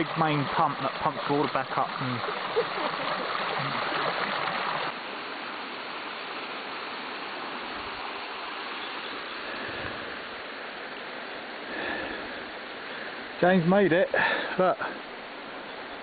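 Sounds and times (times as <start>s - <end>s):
waterfall splashing: 0.0s - 5.9s.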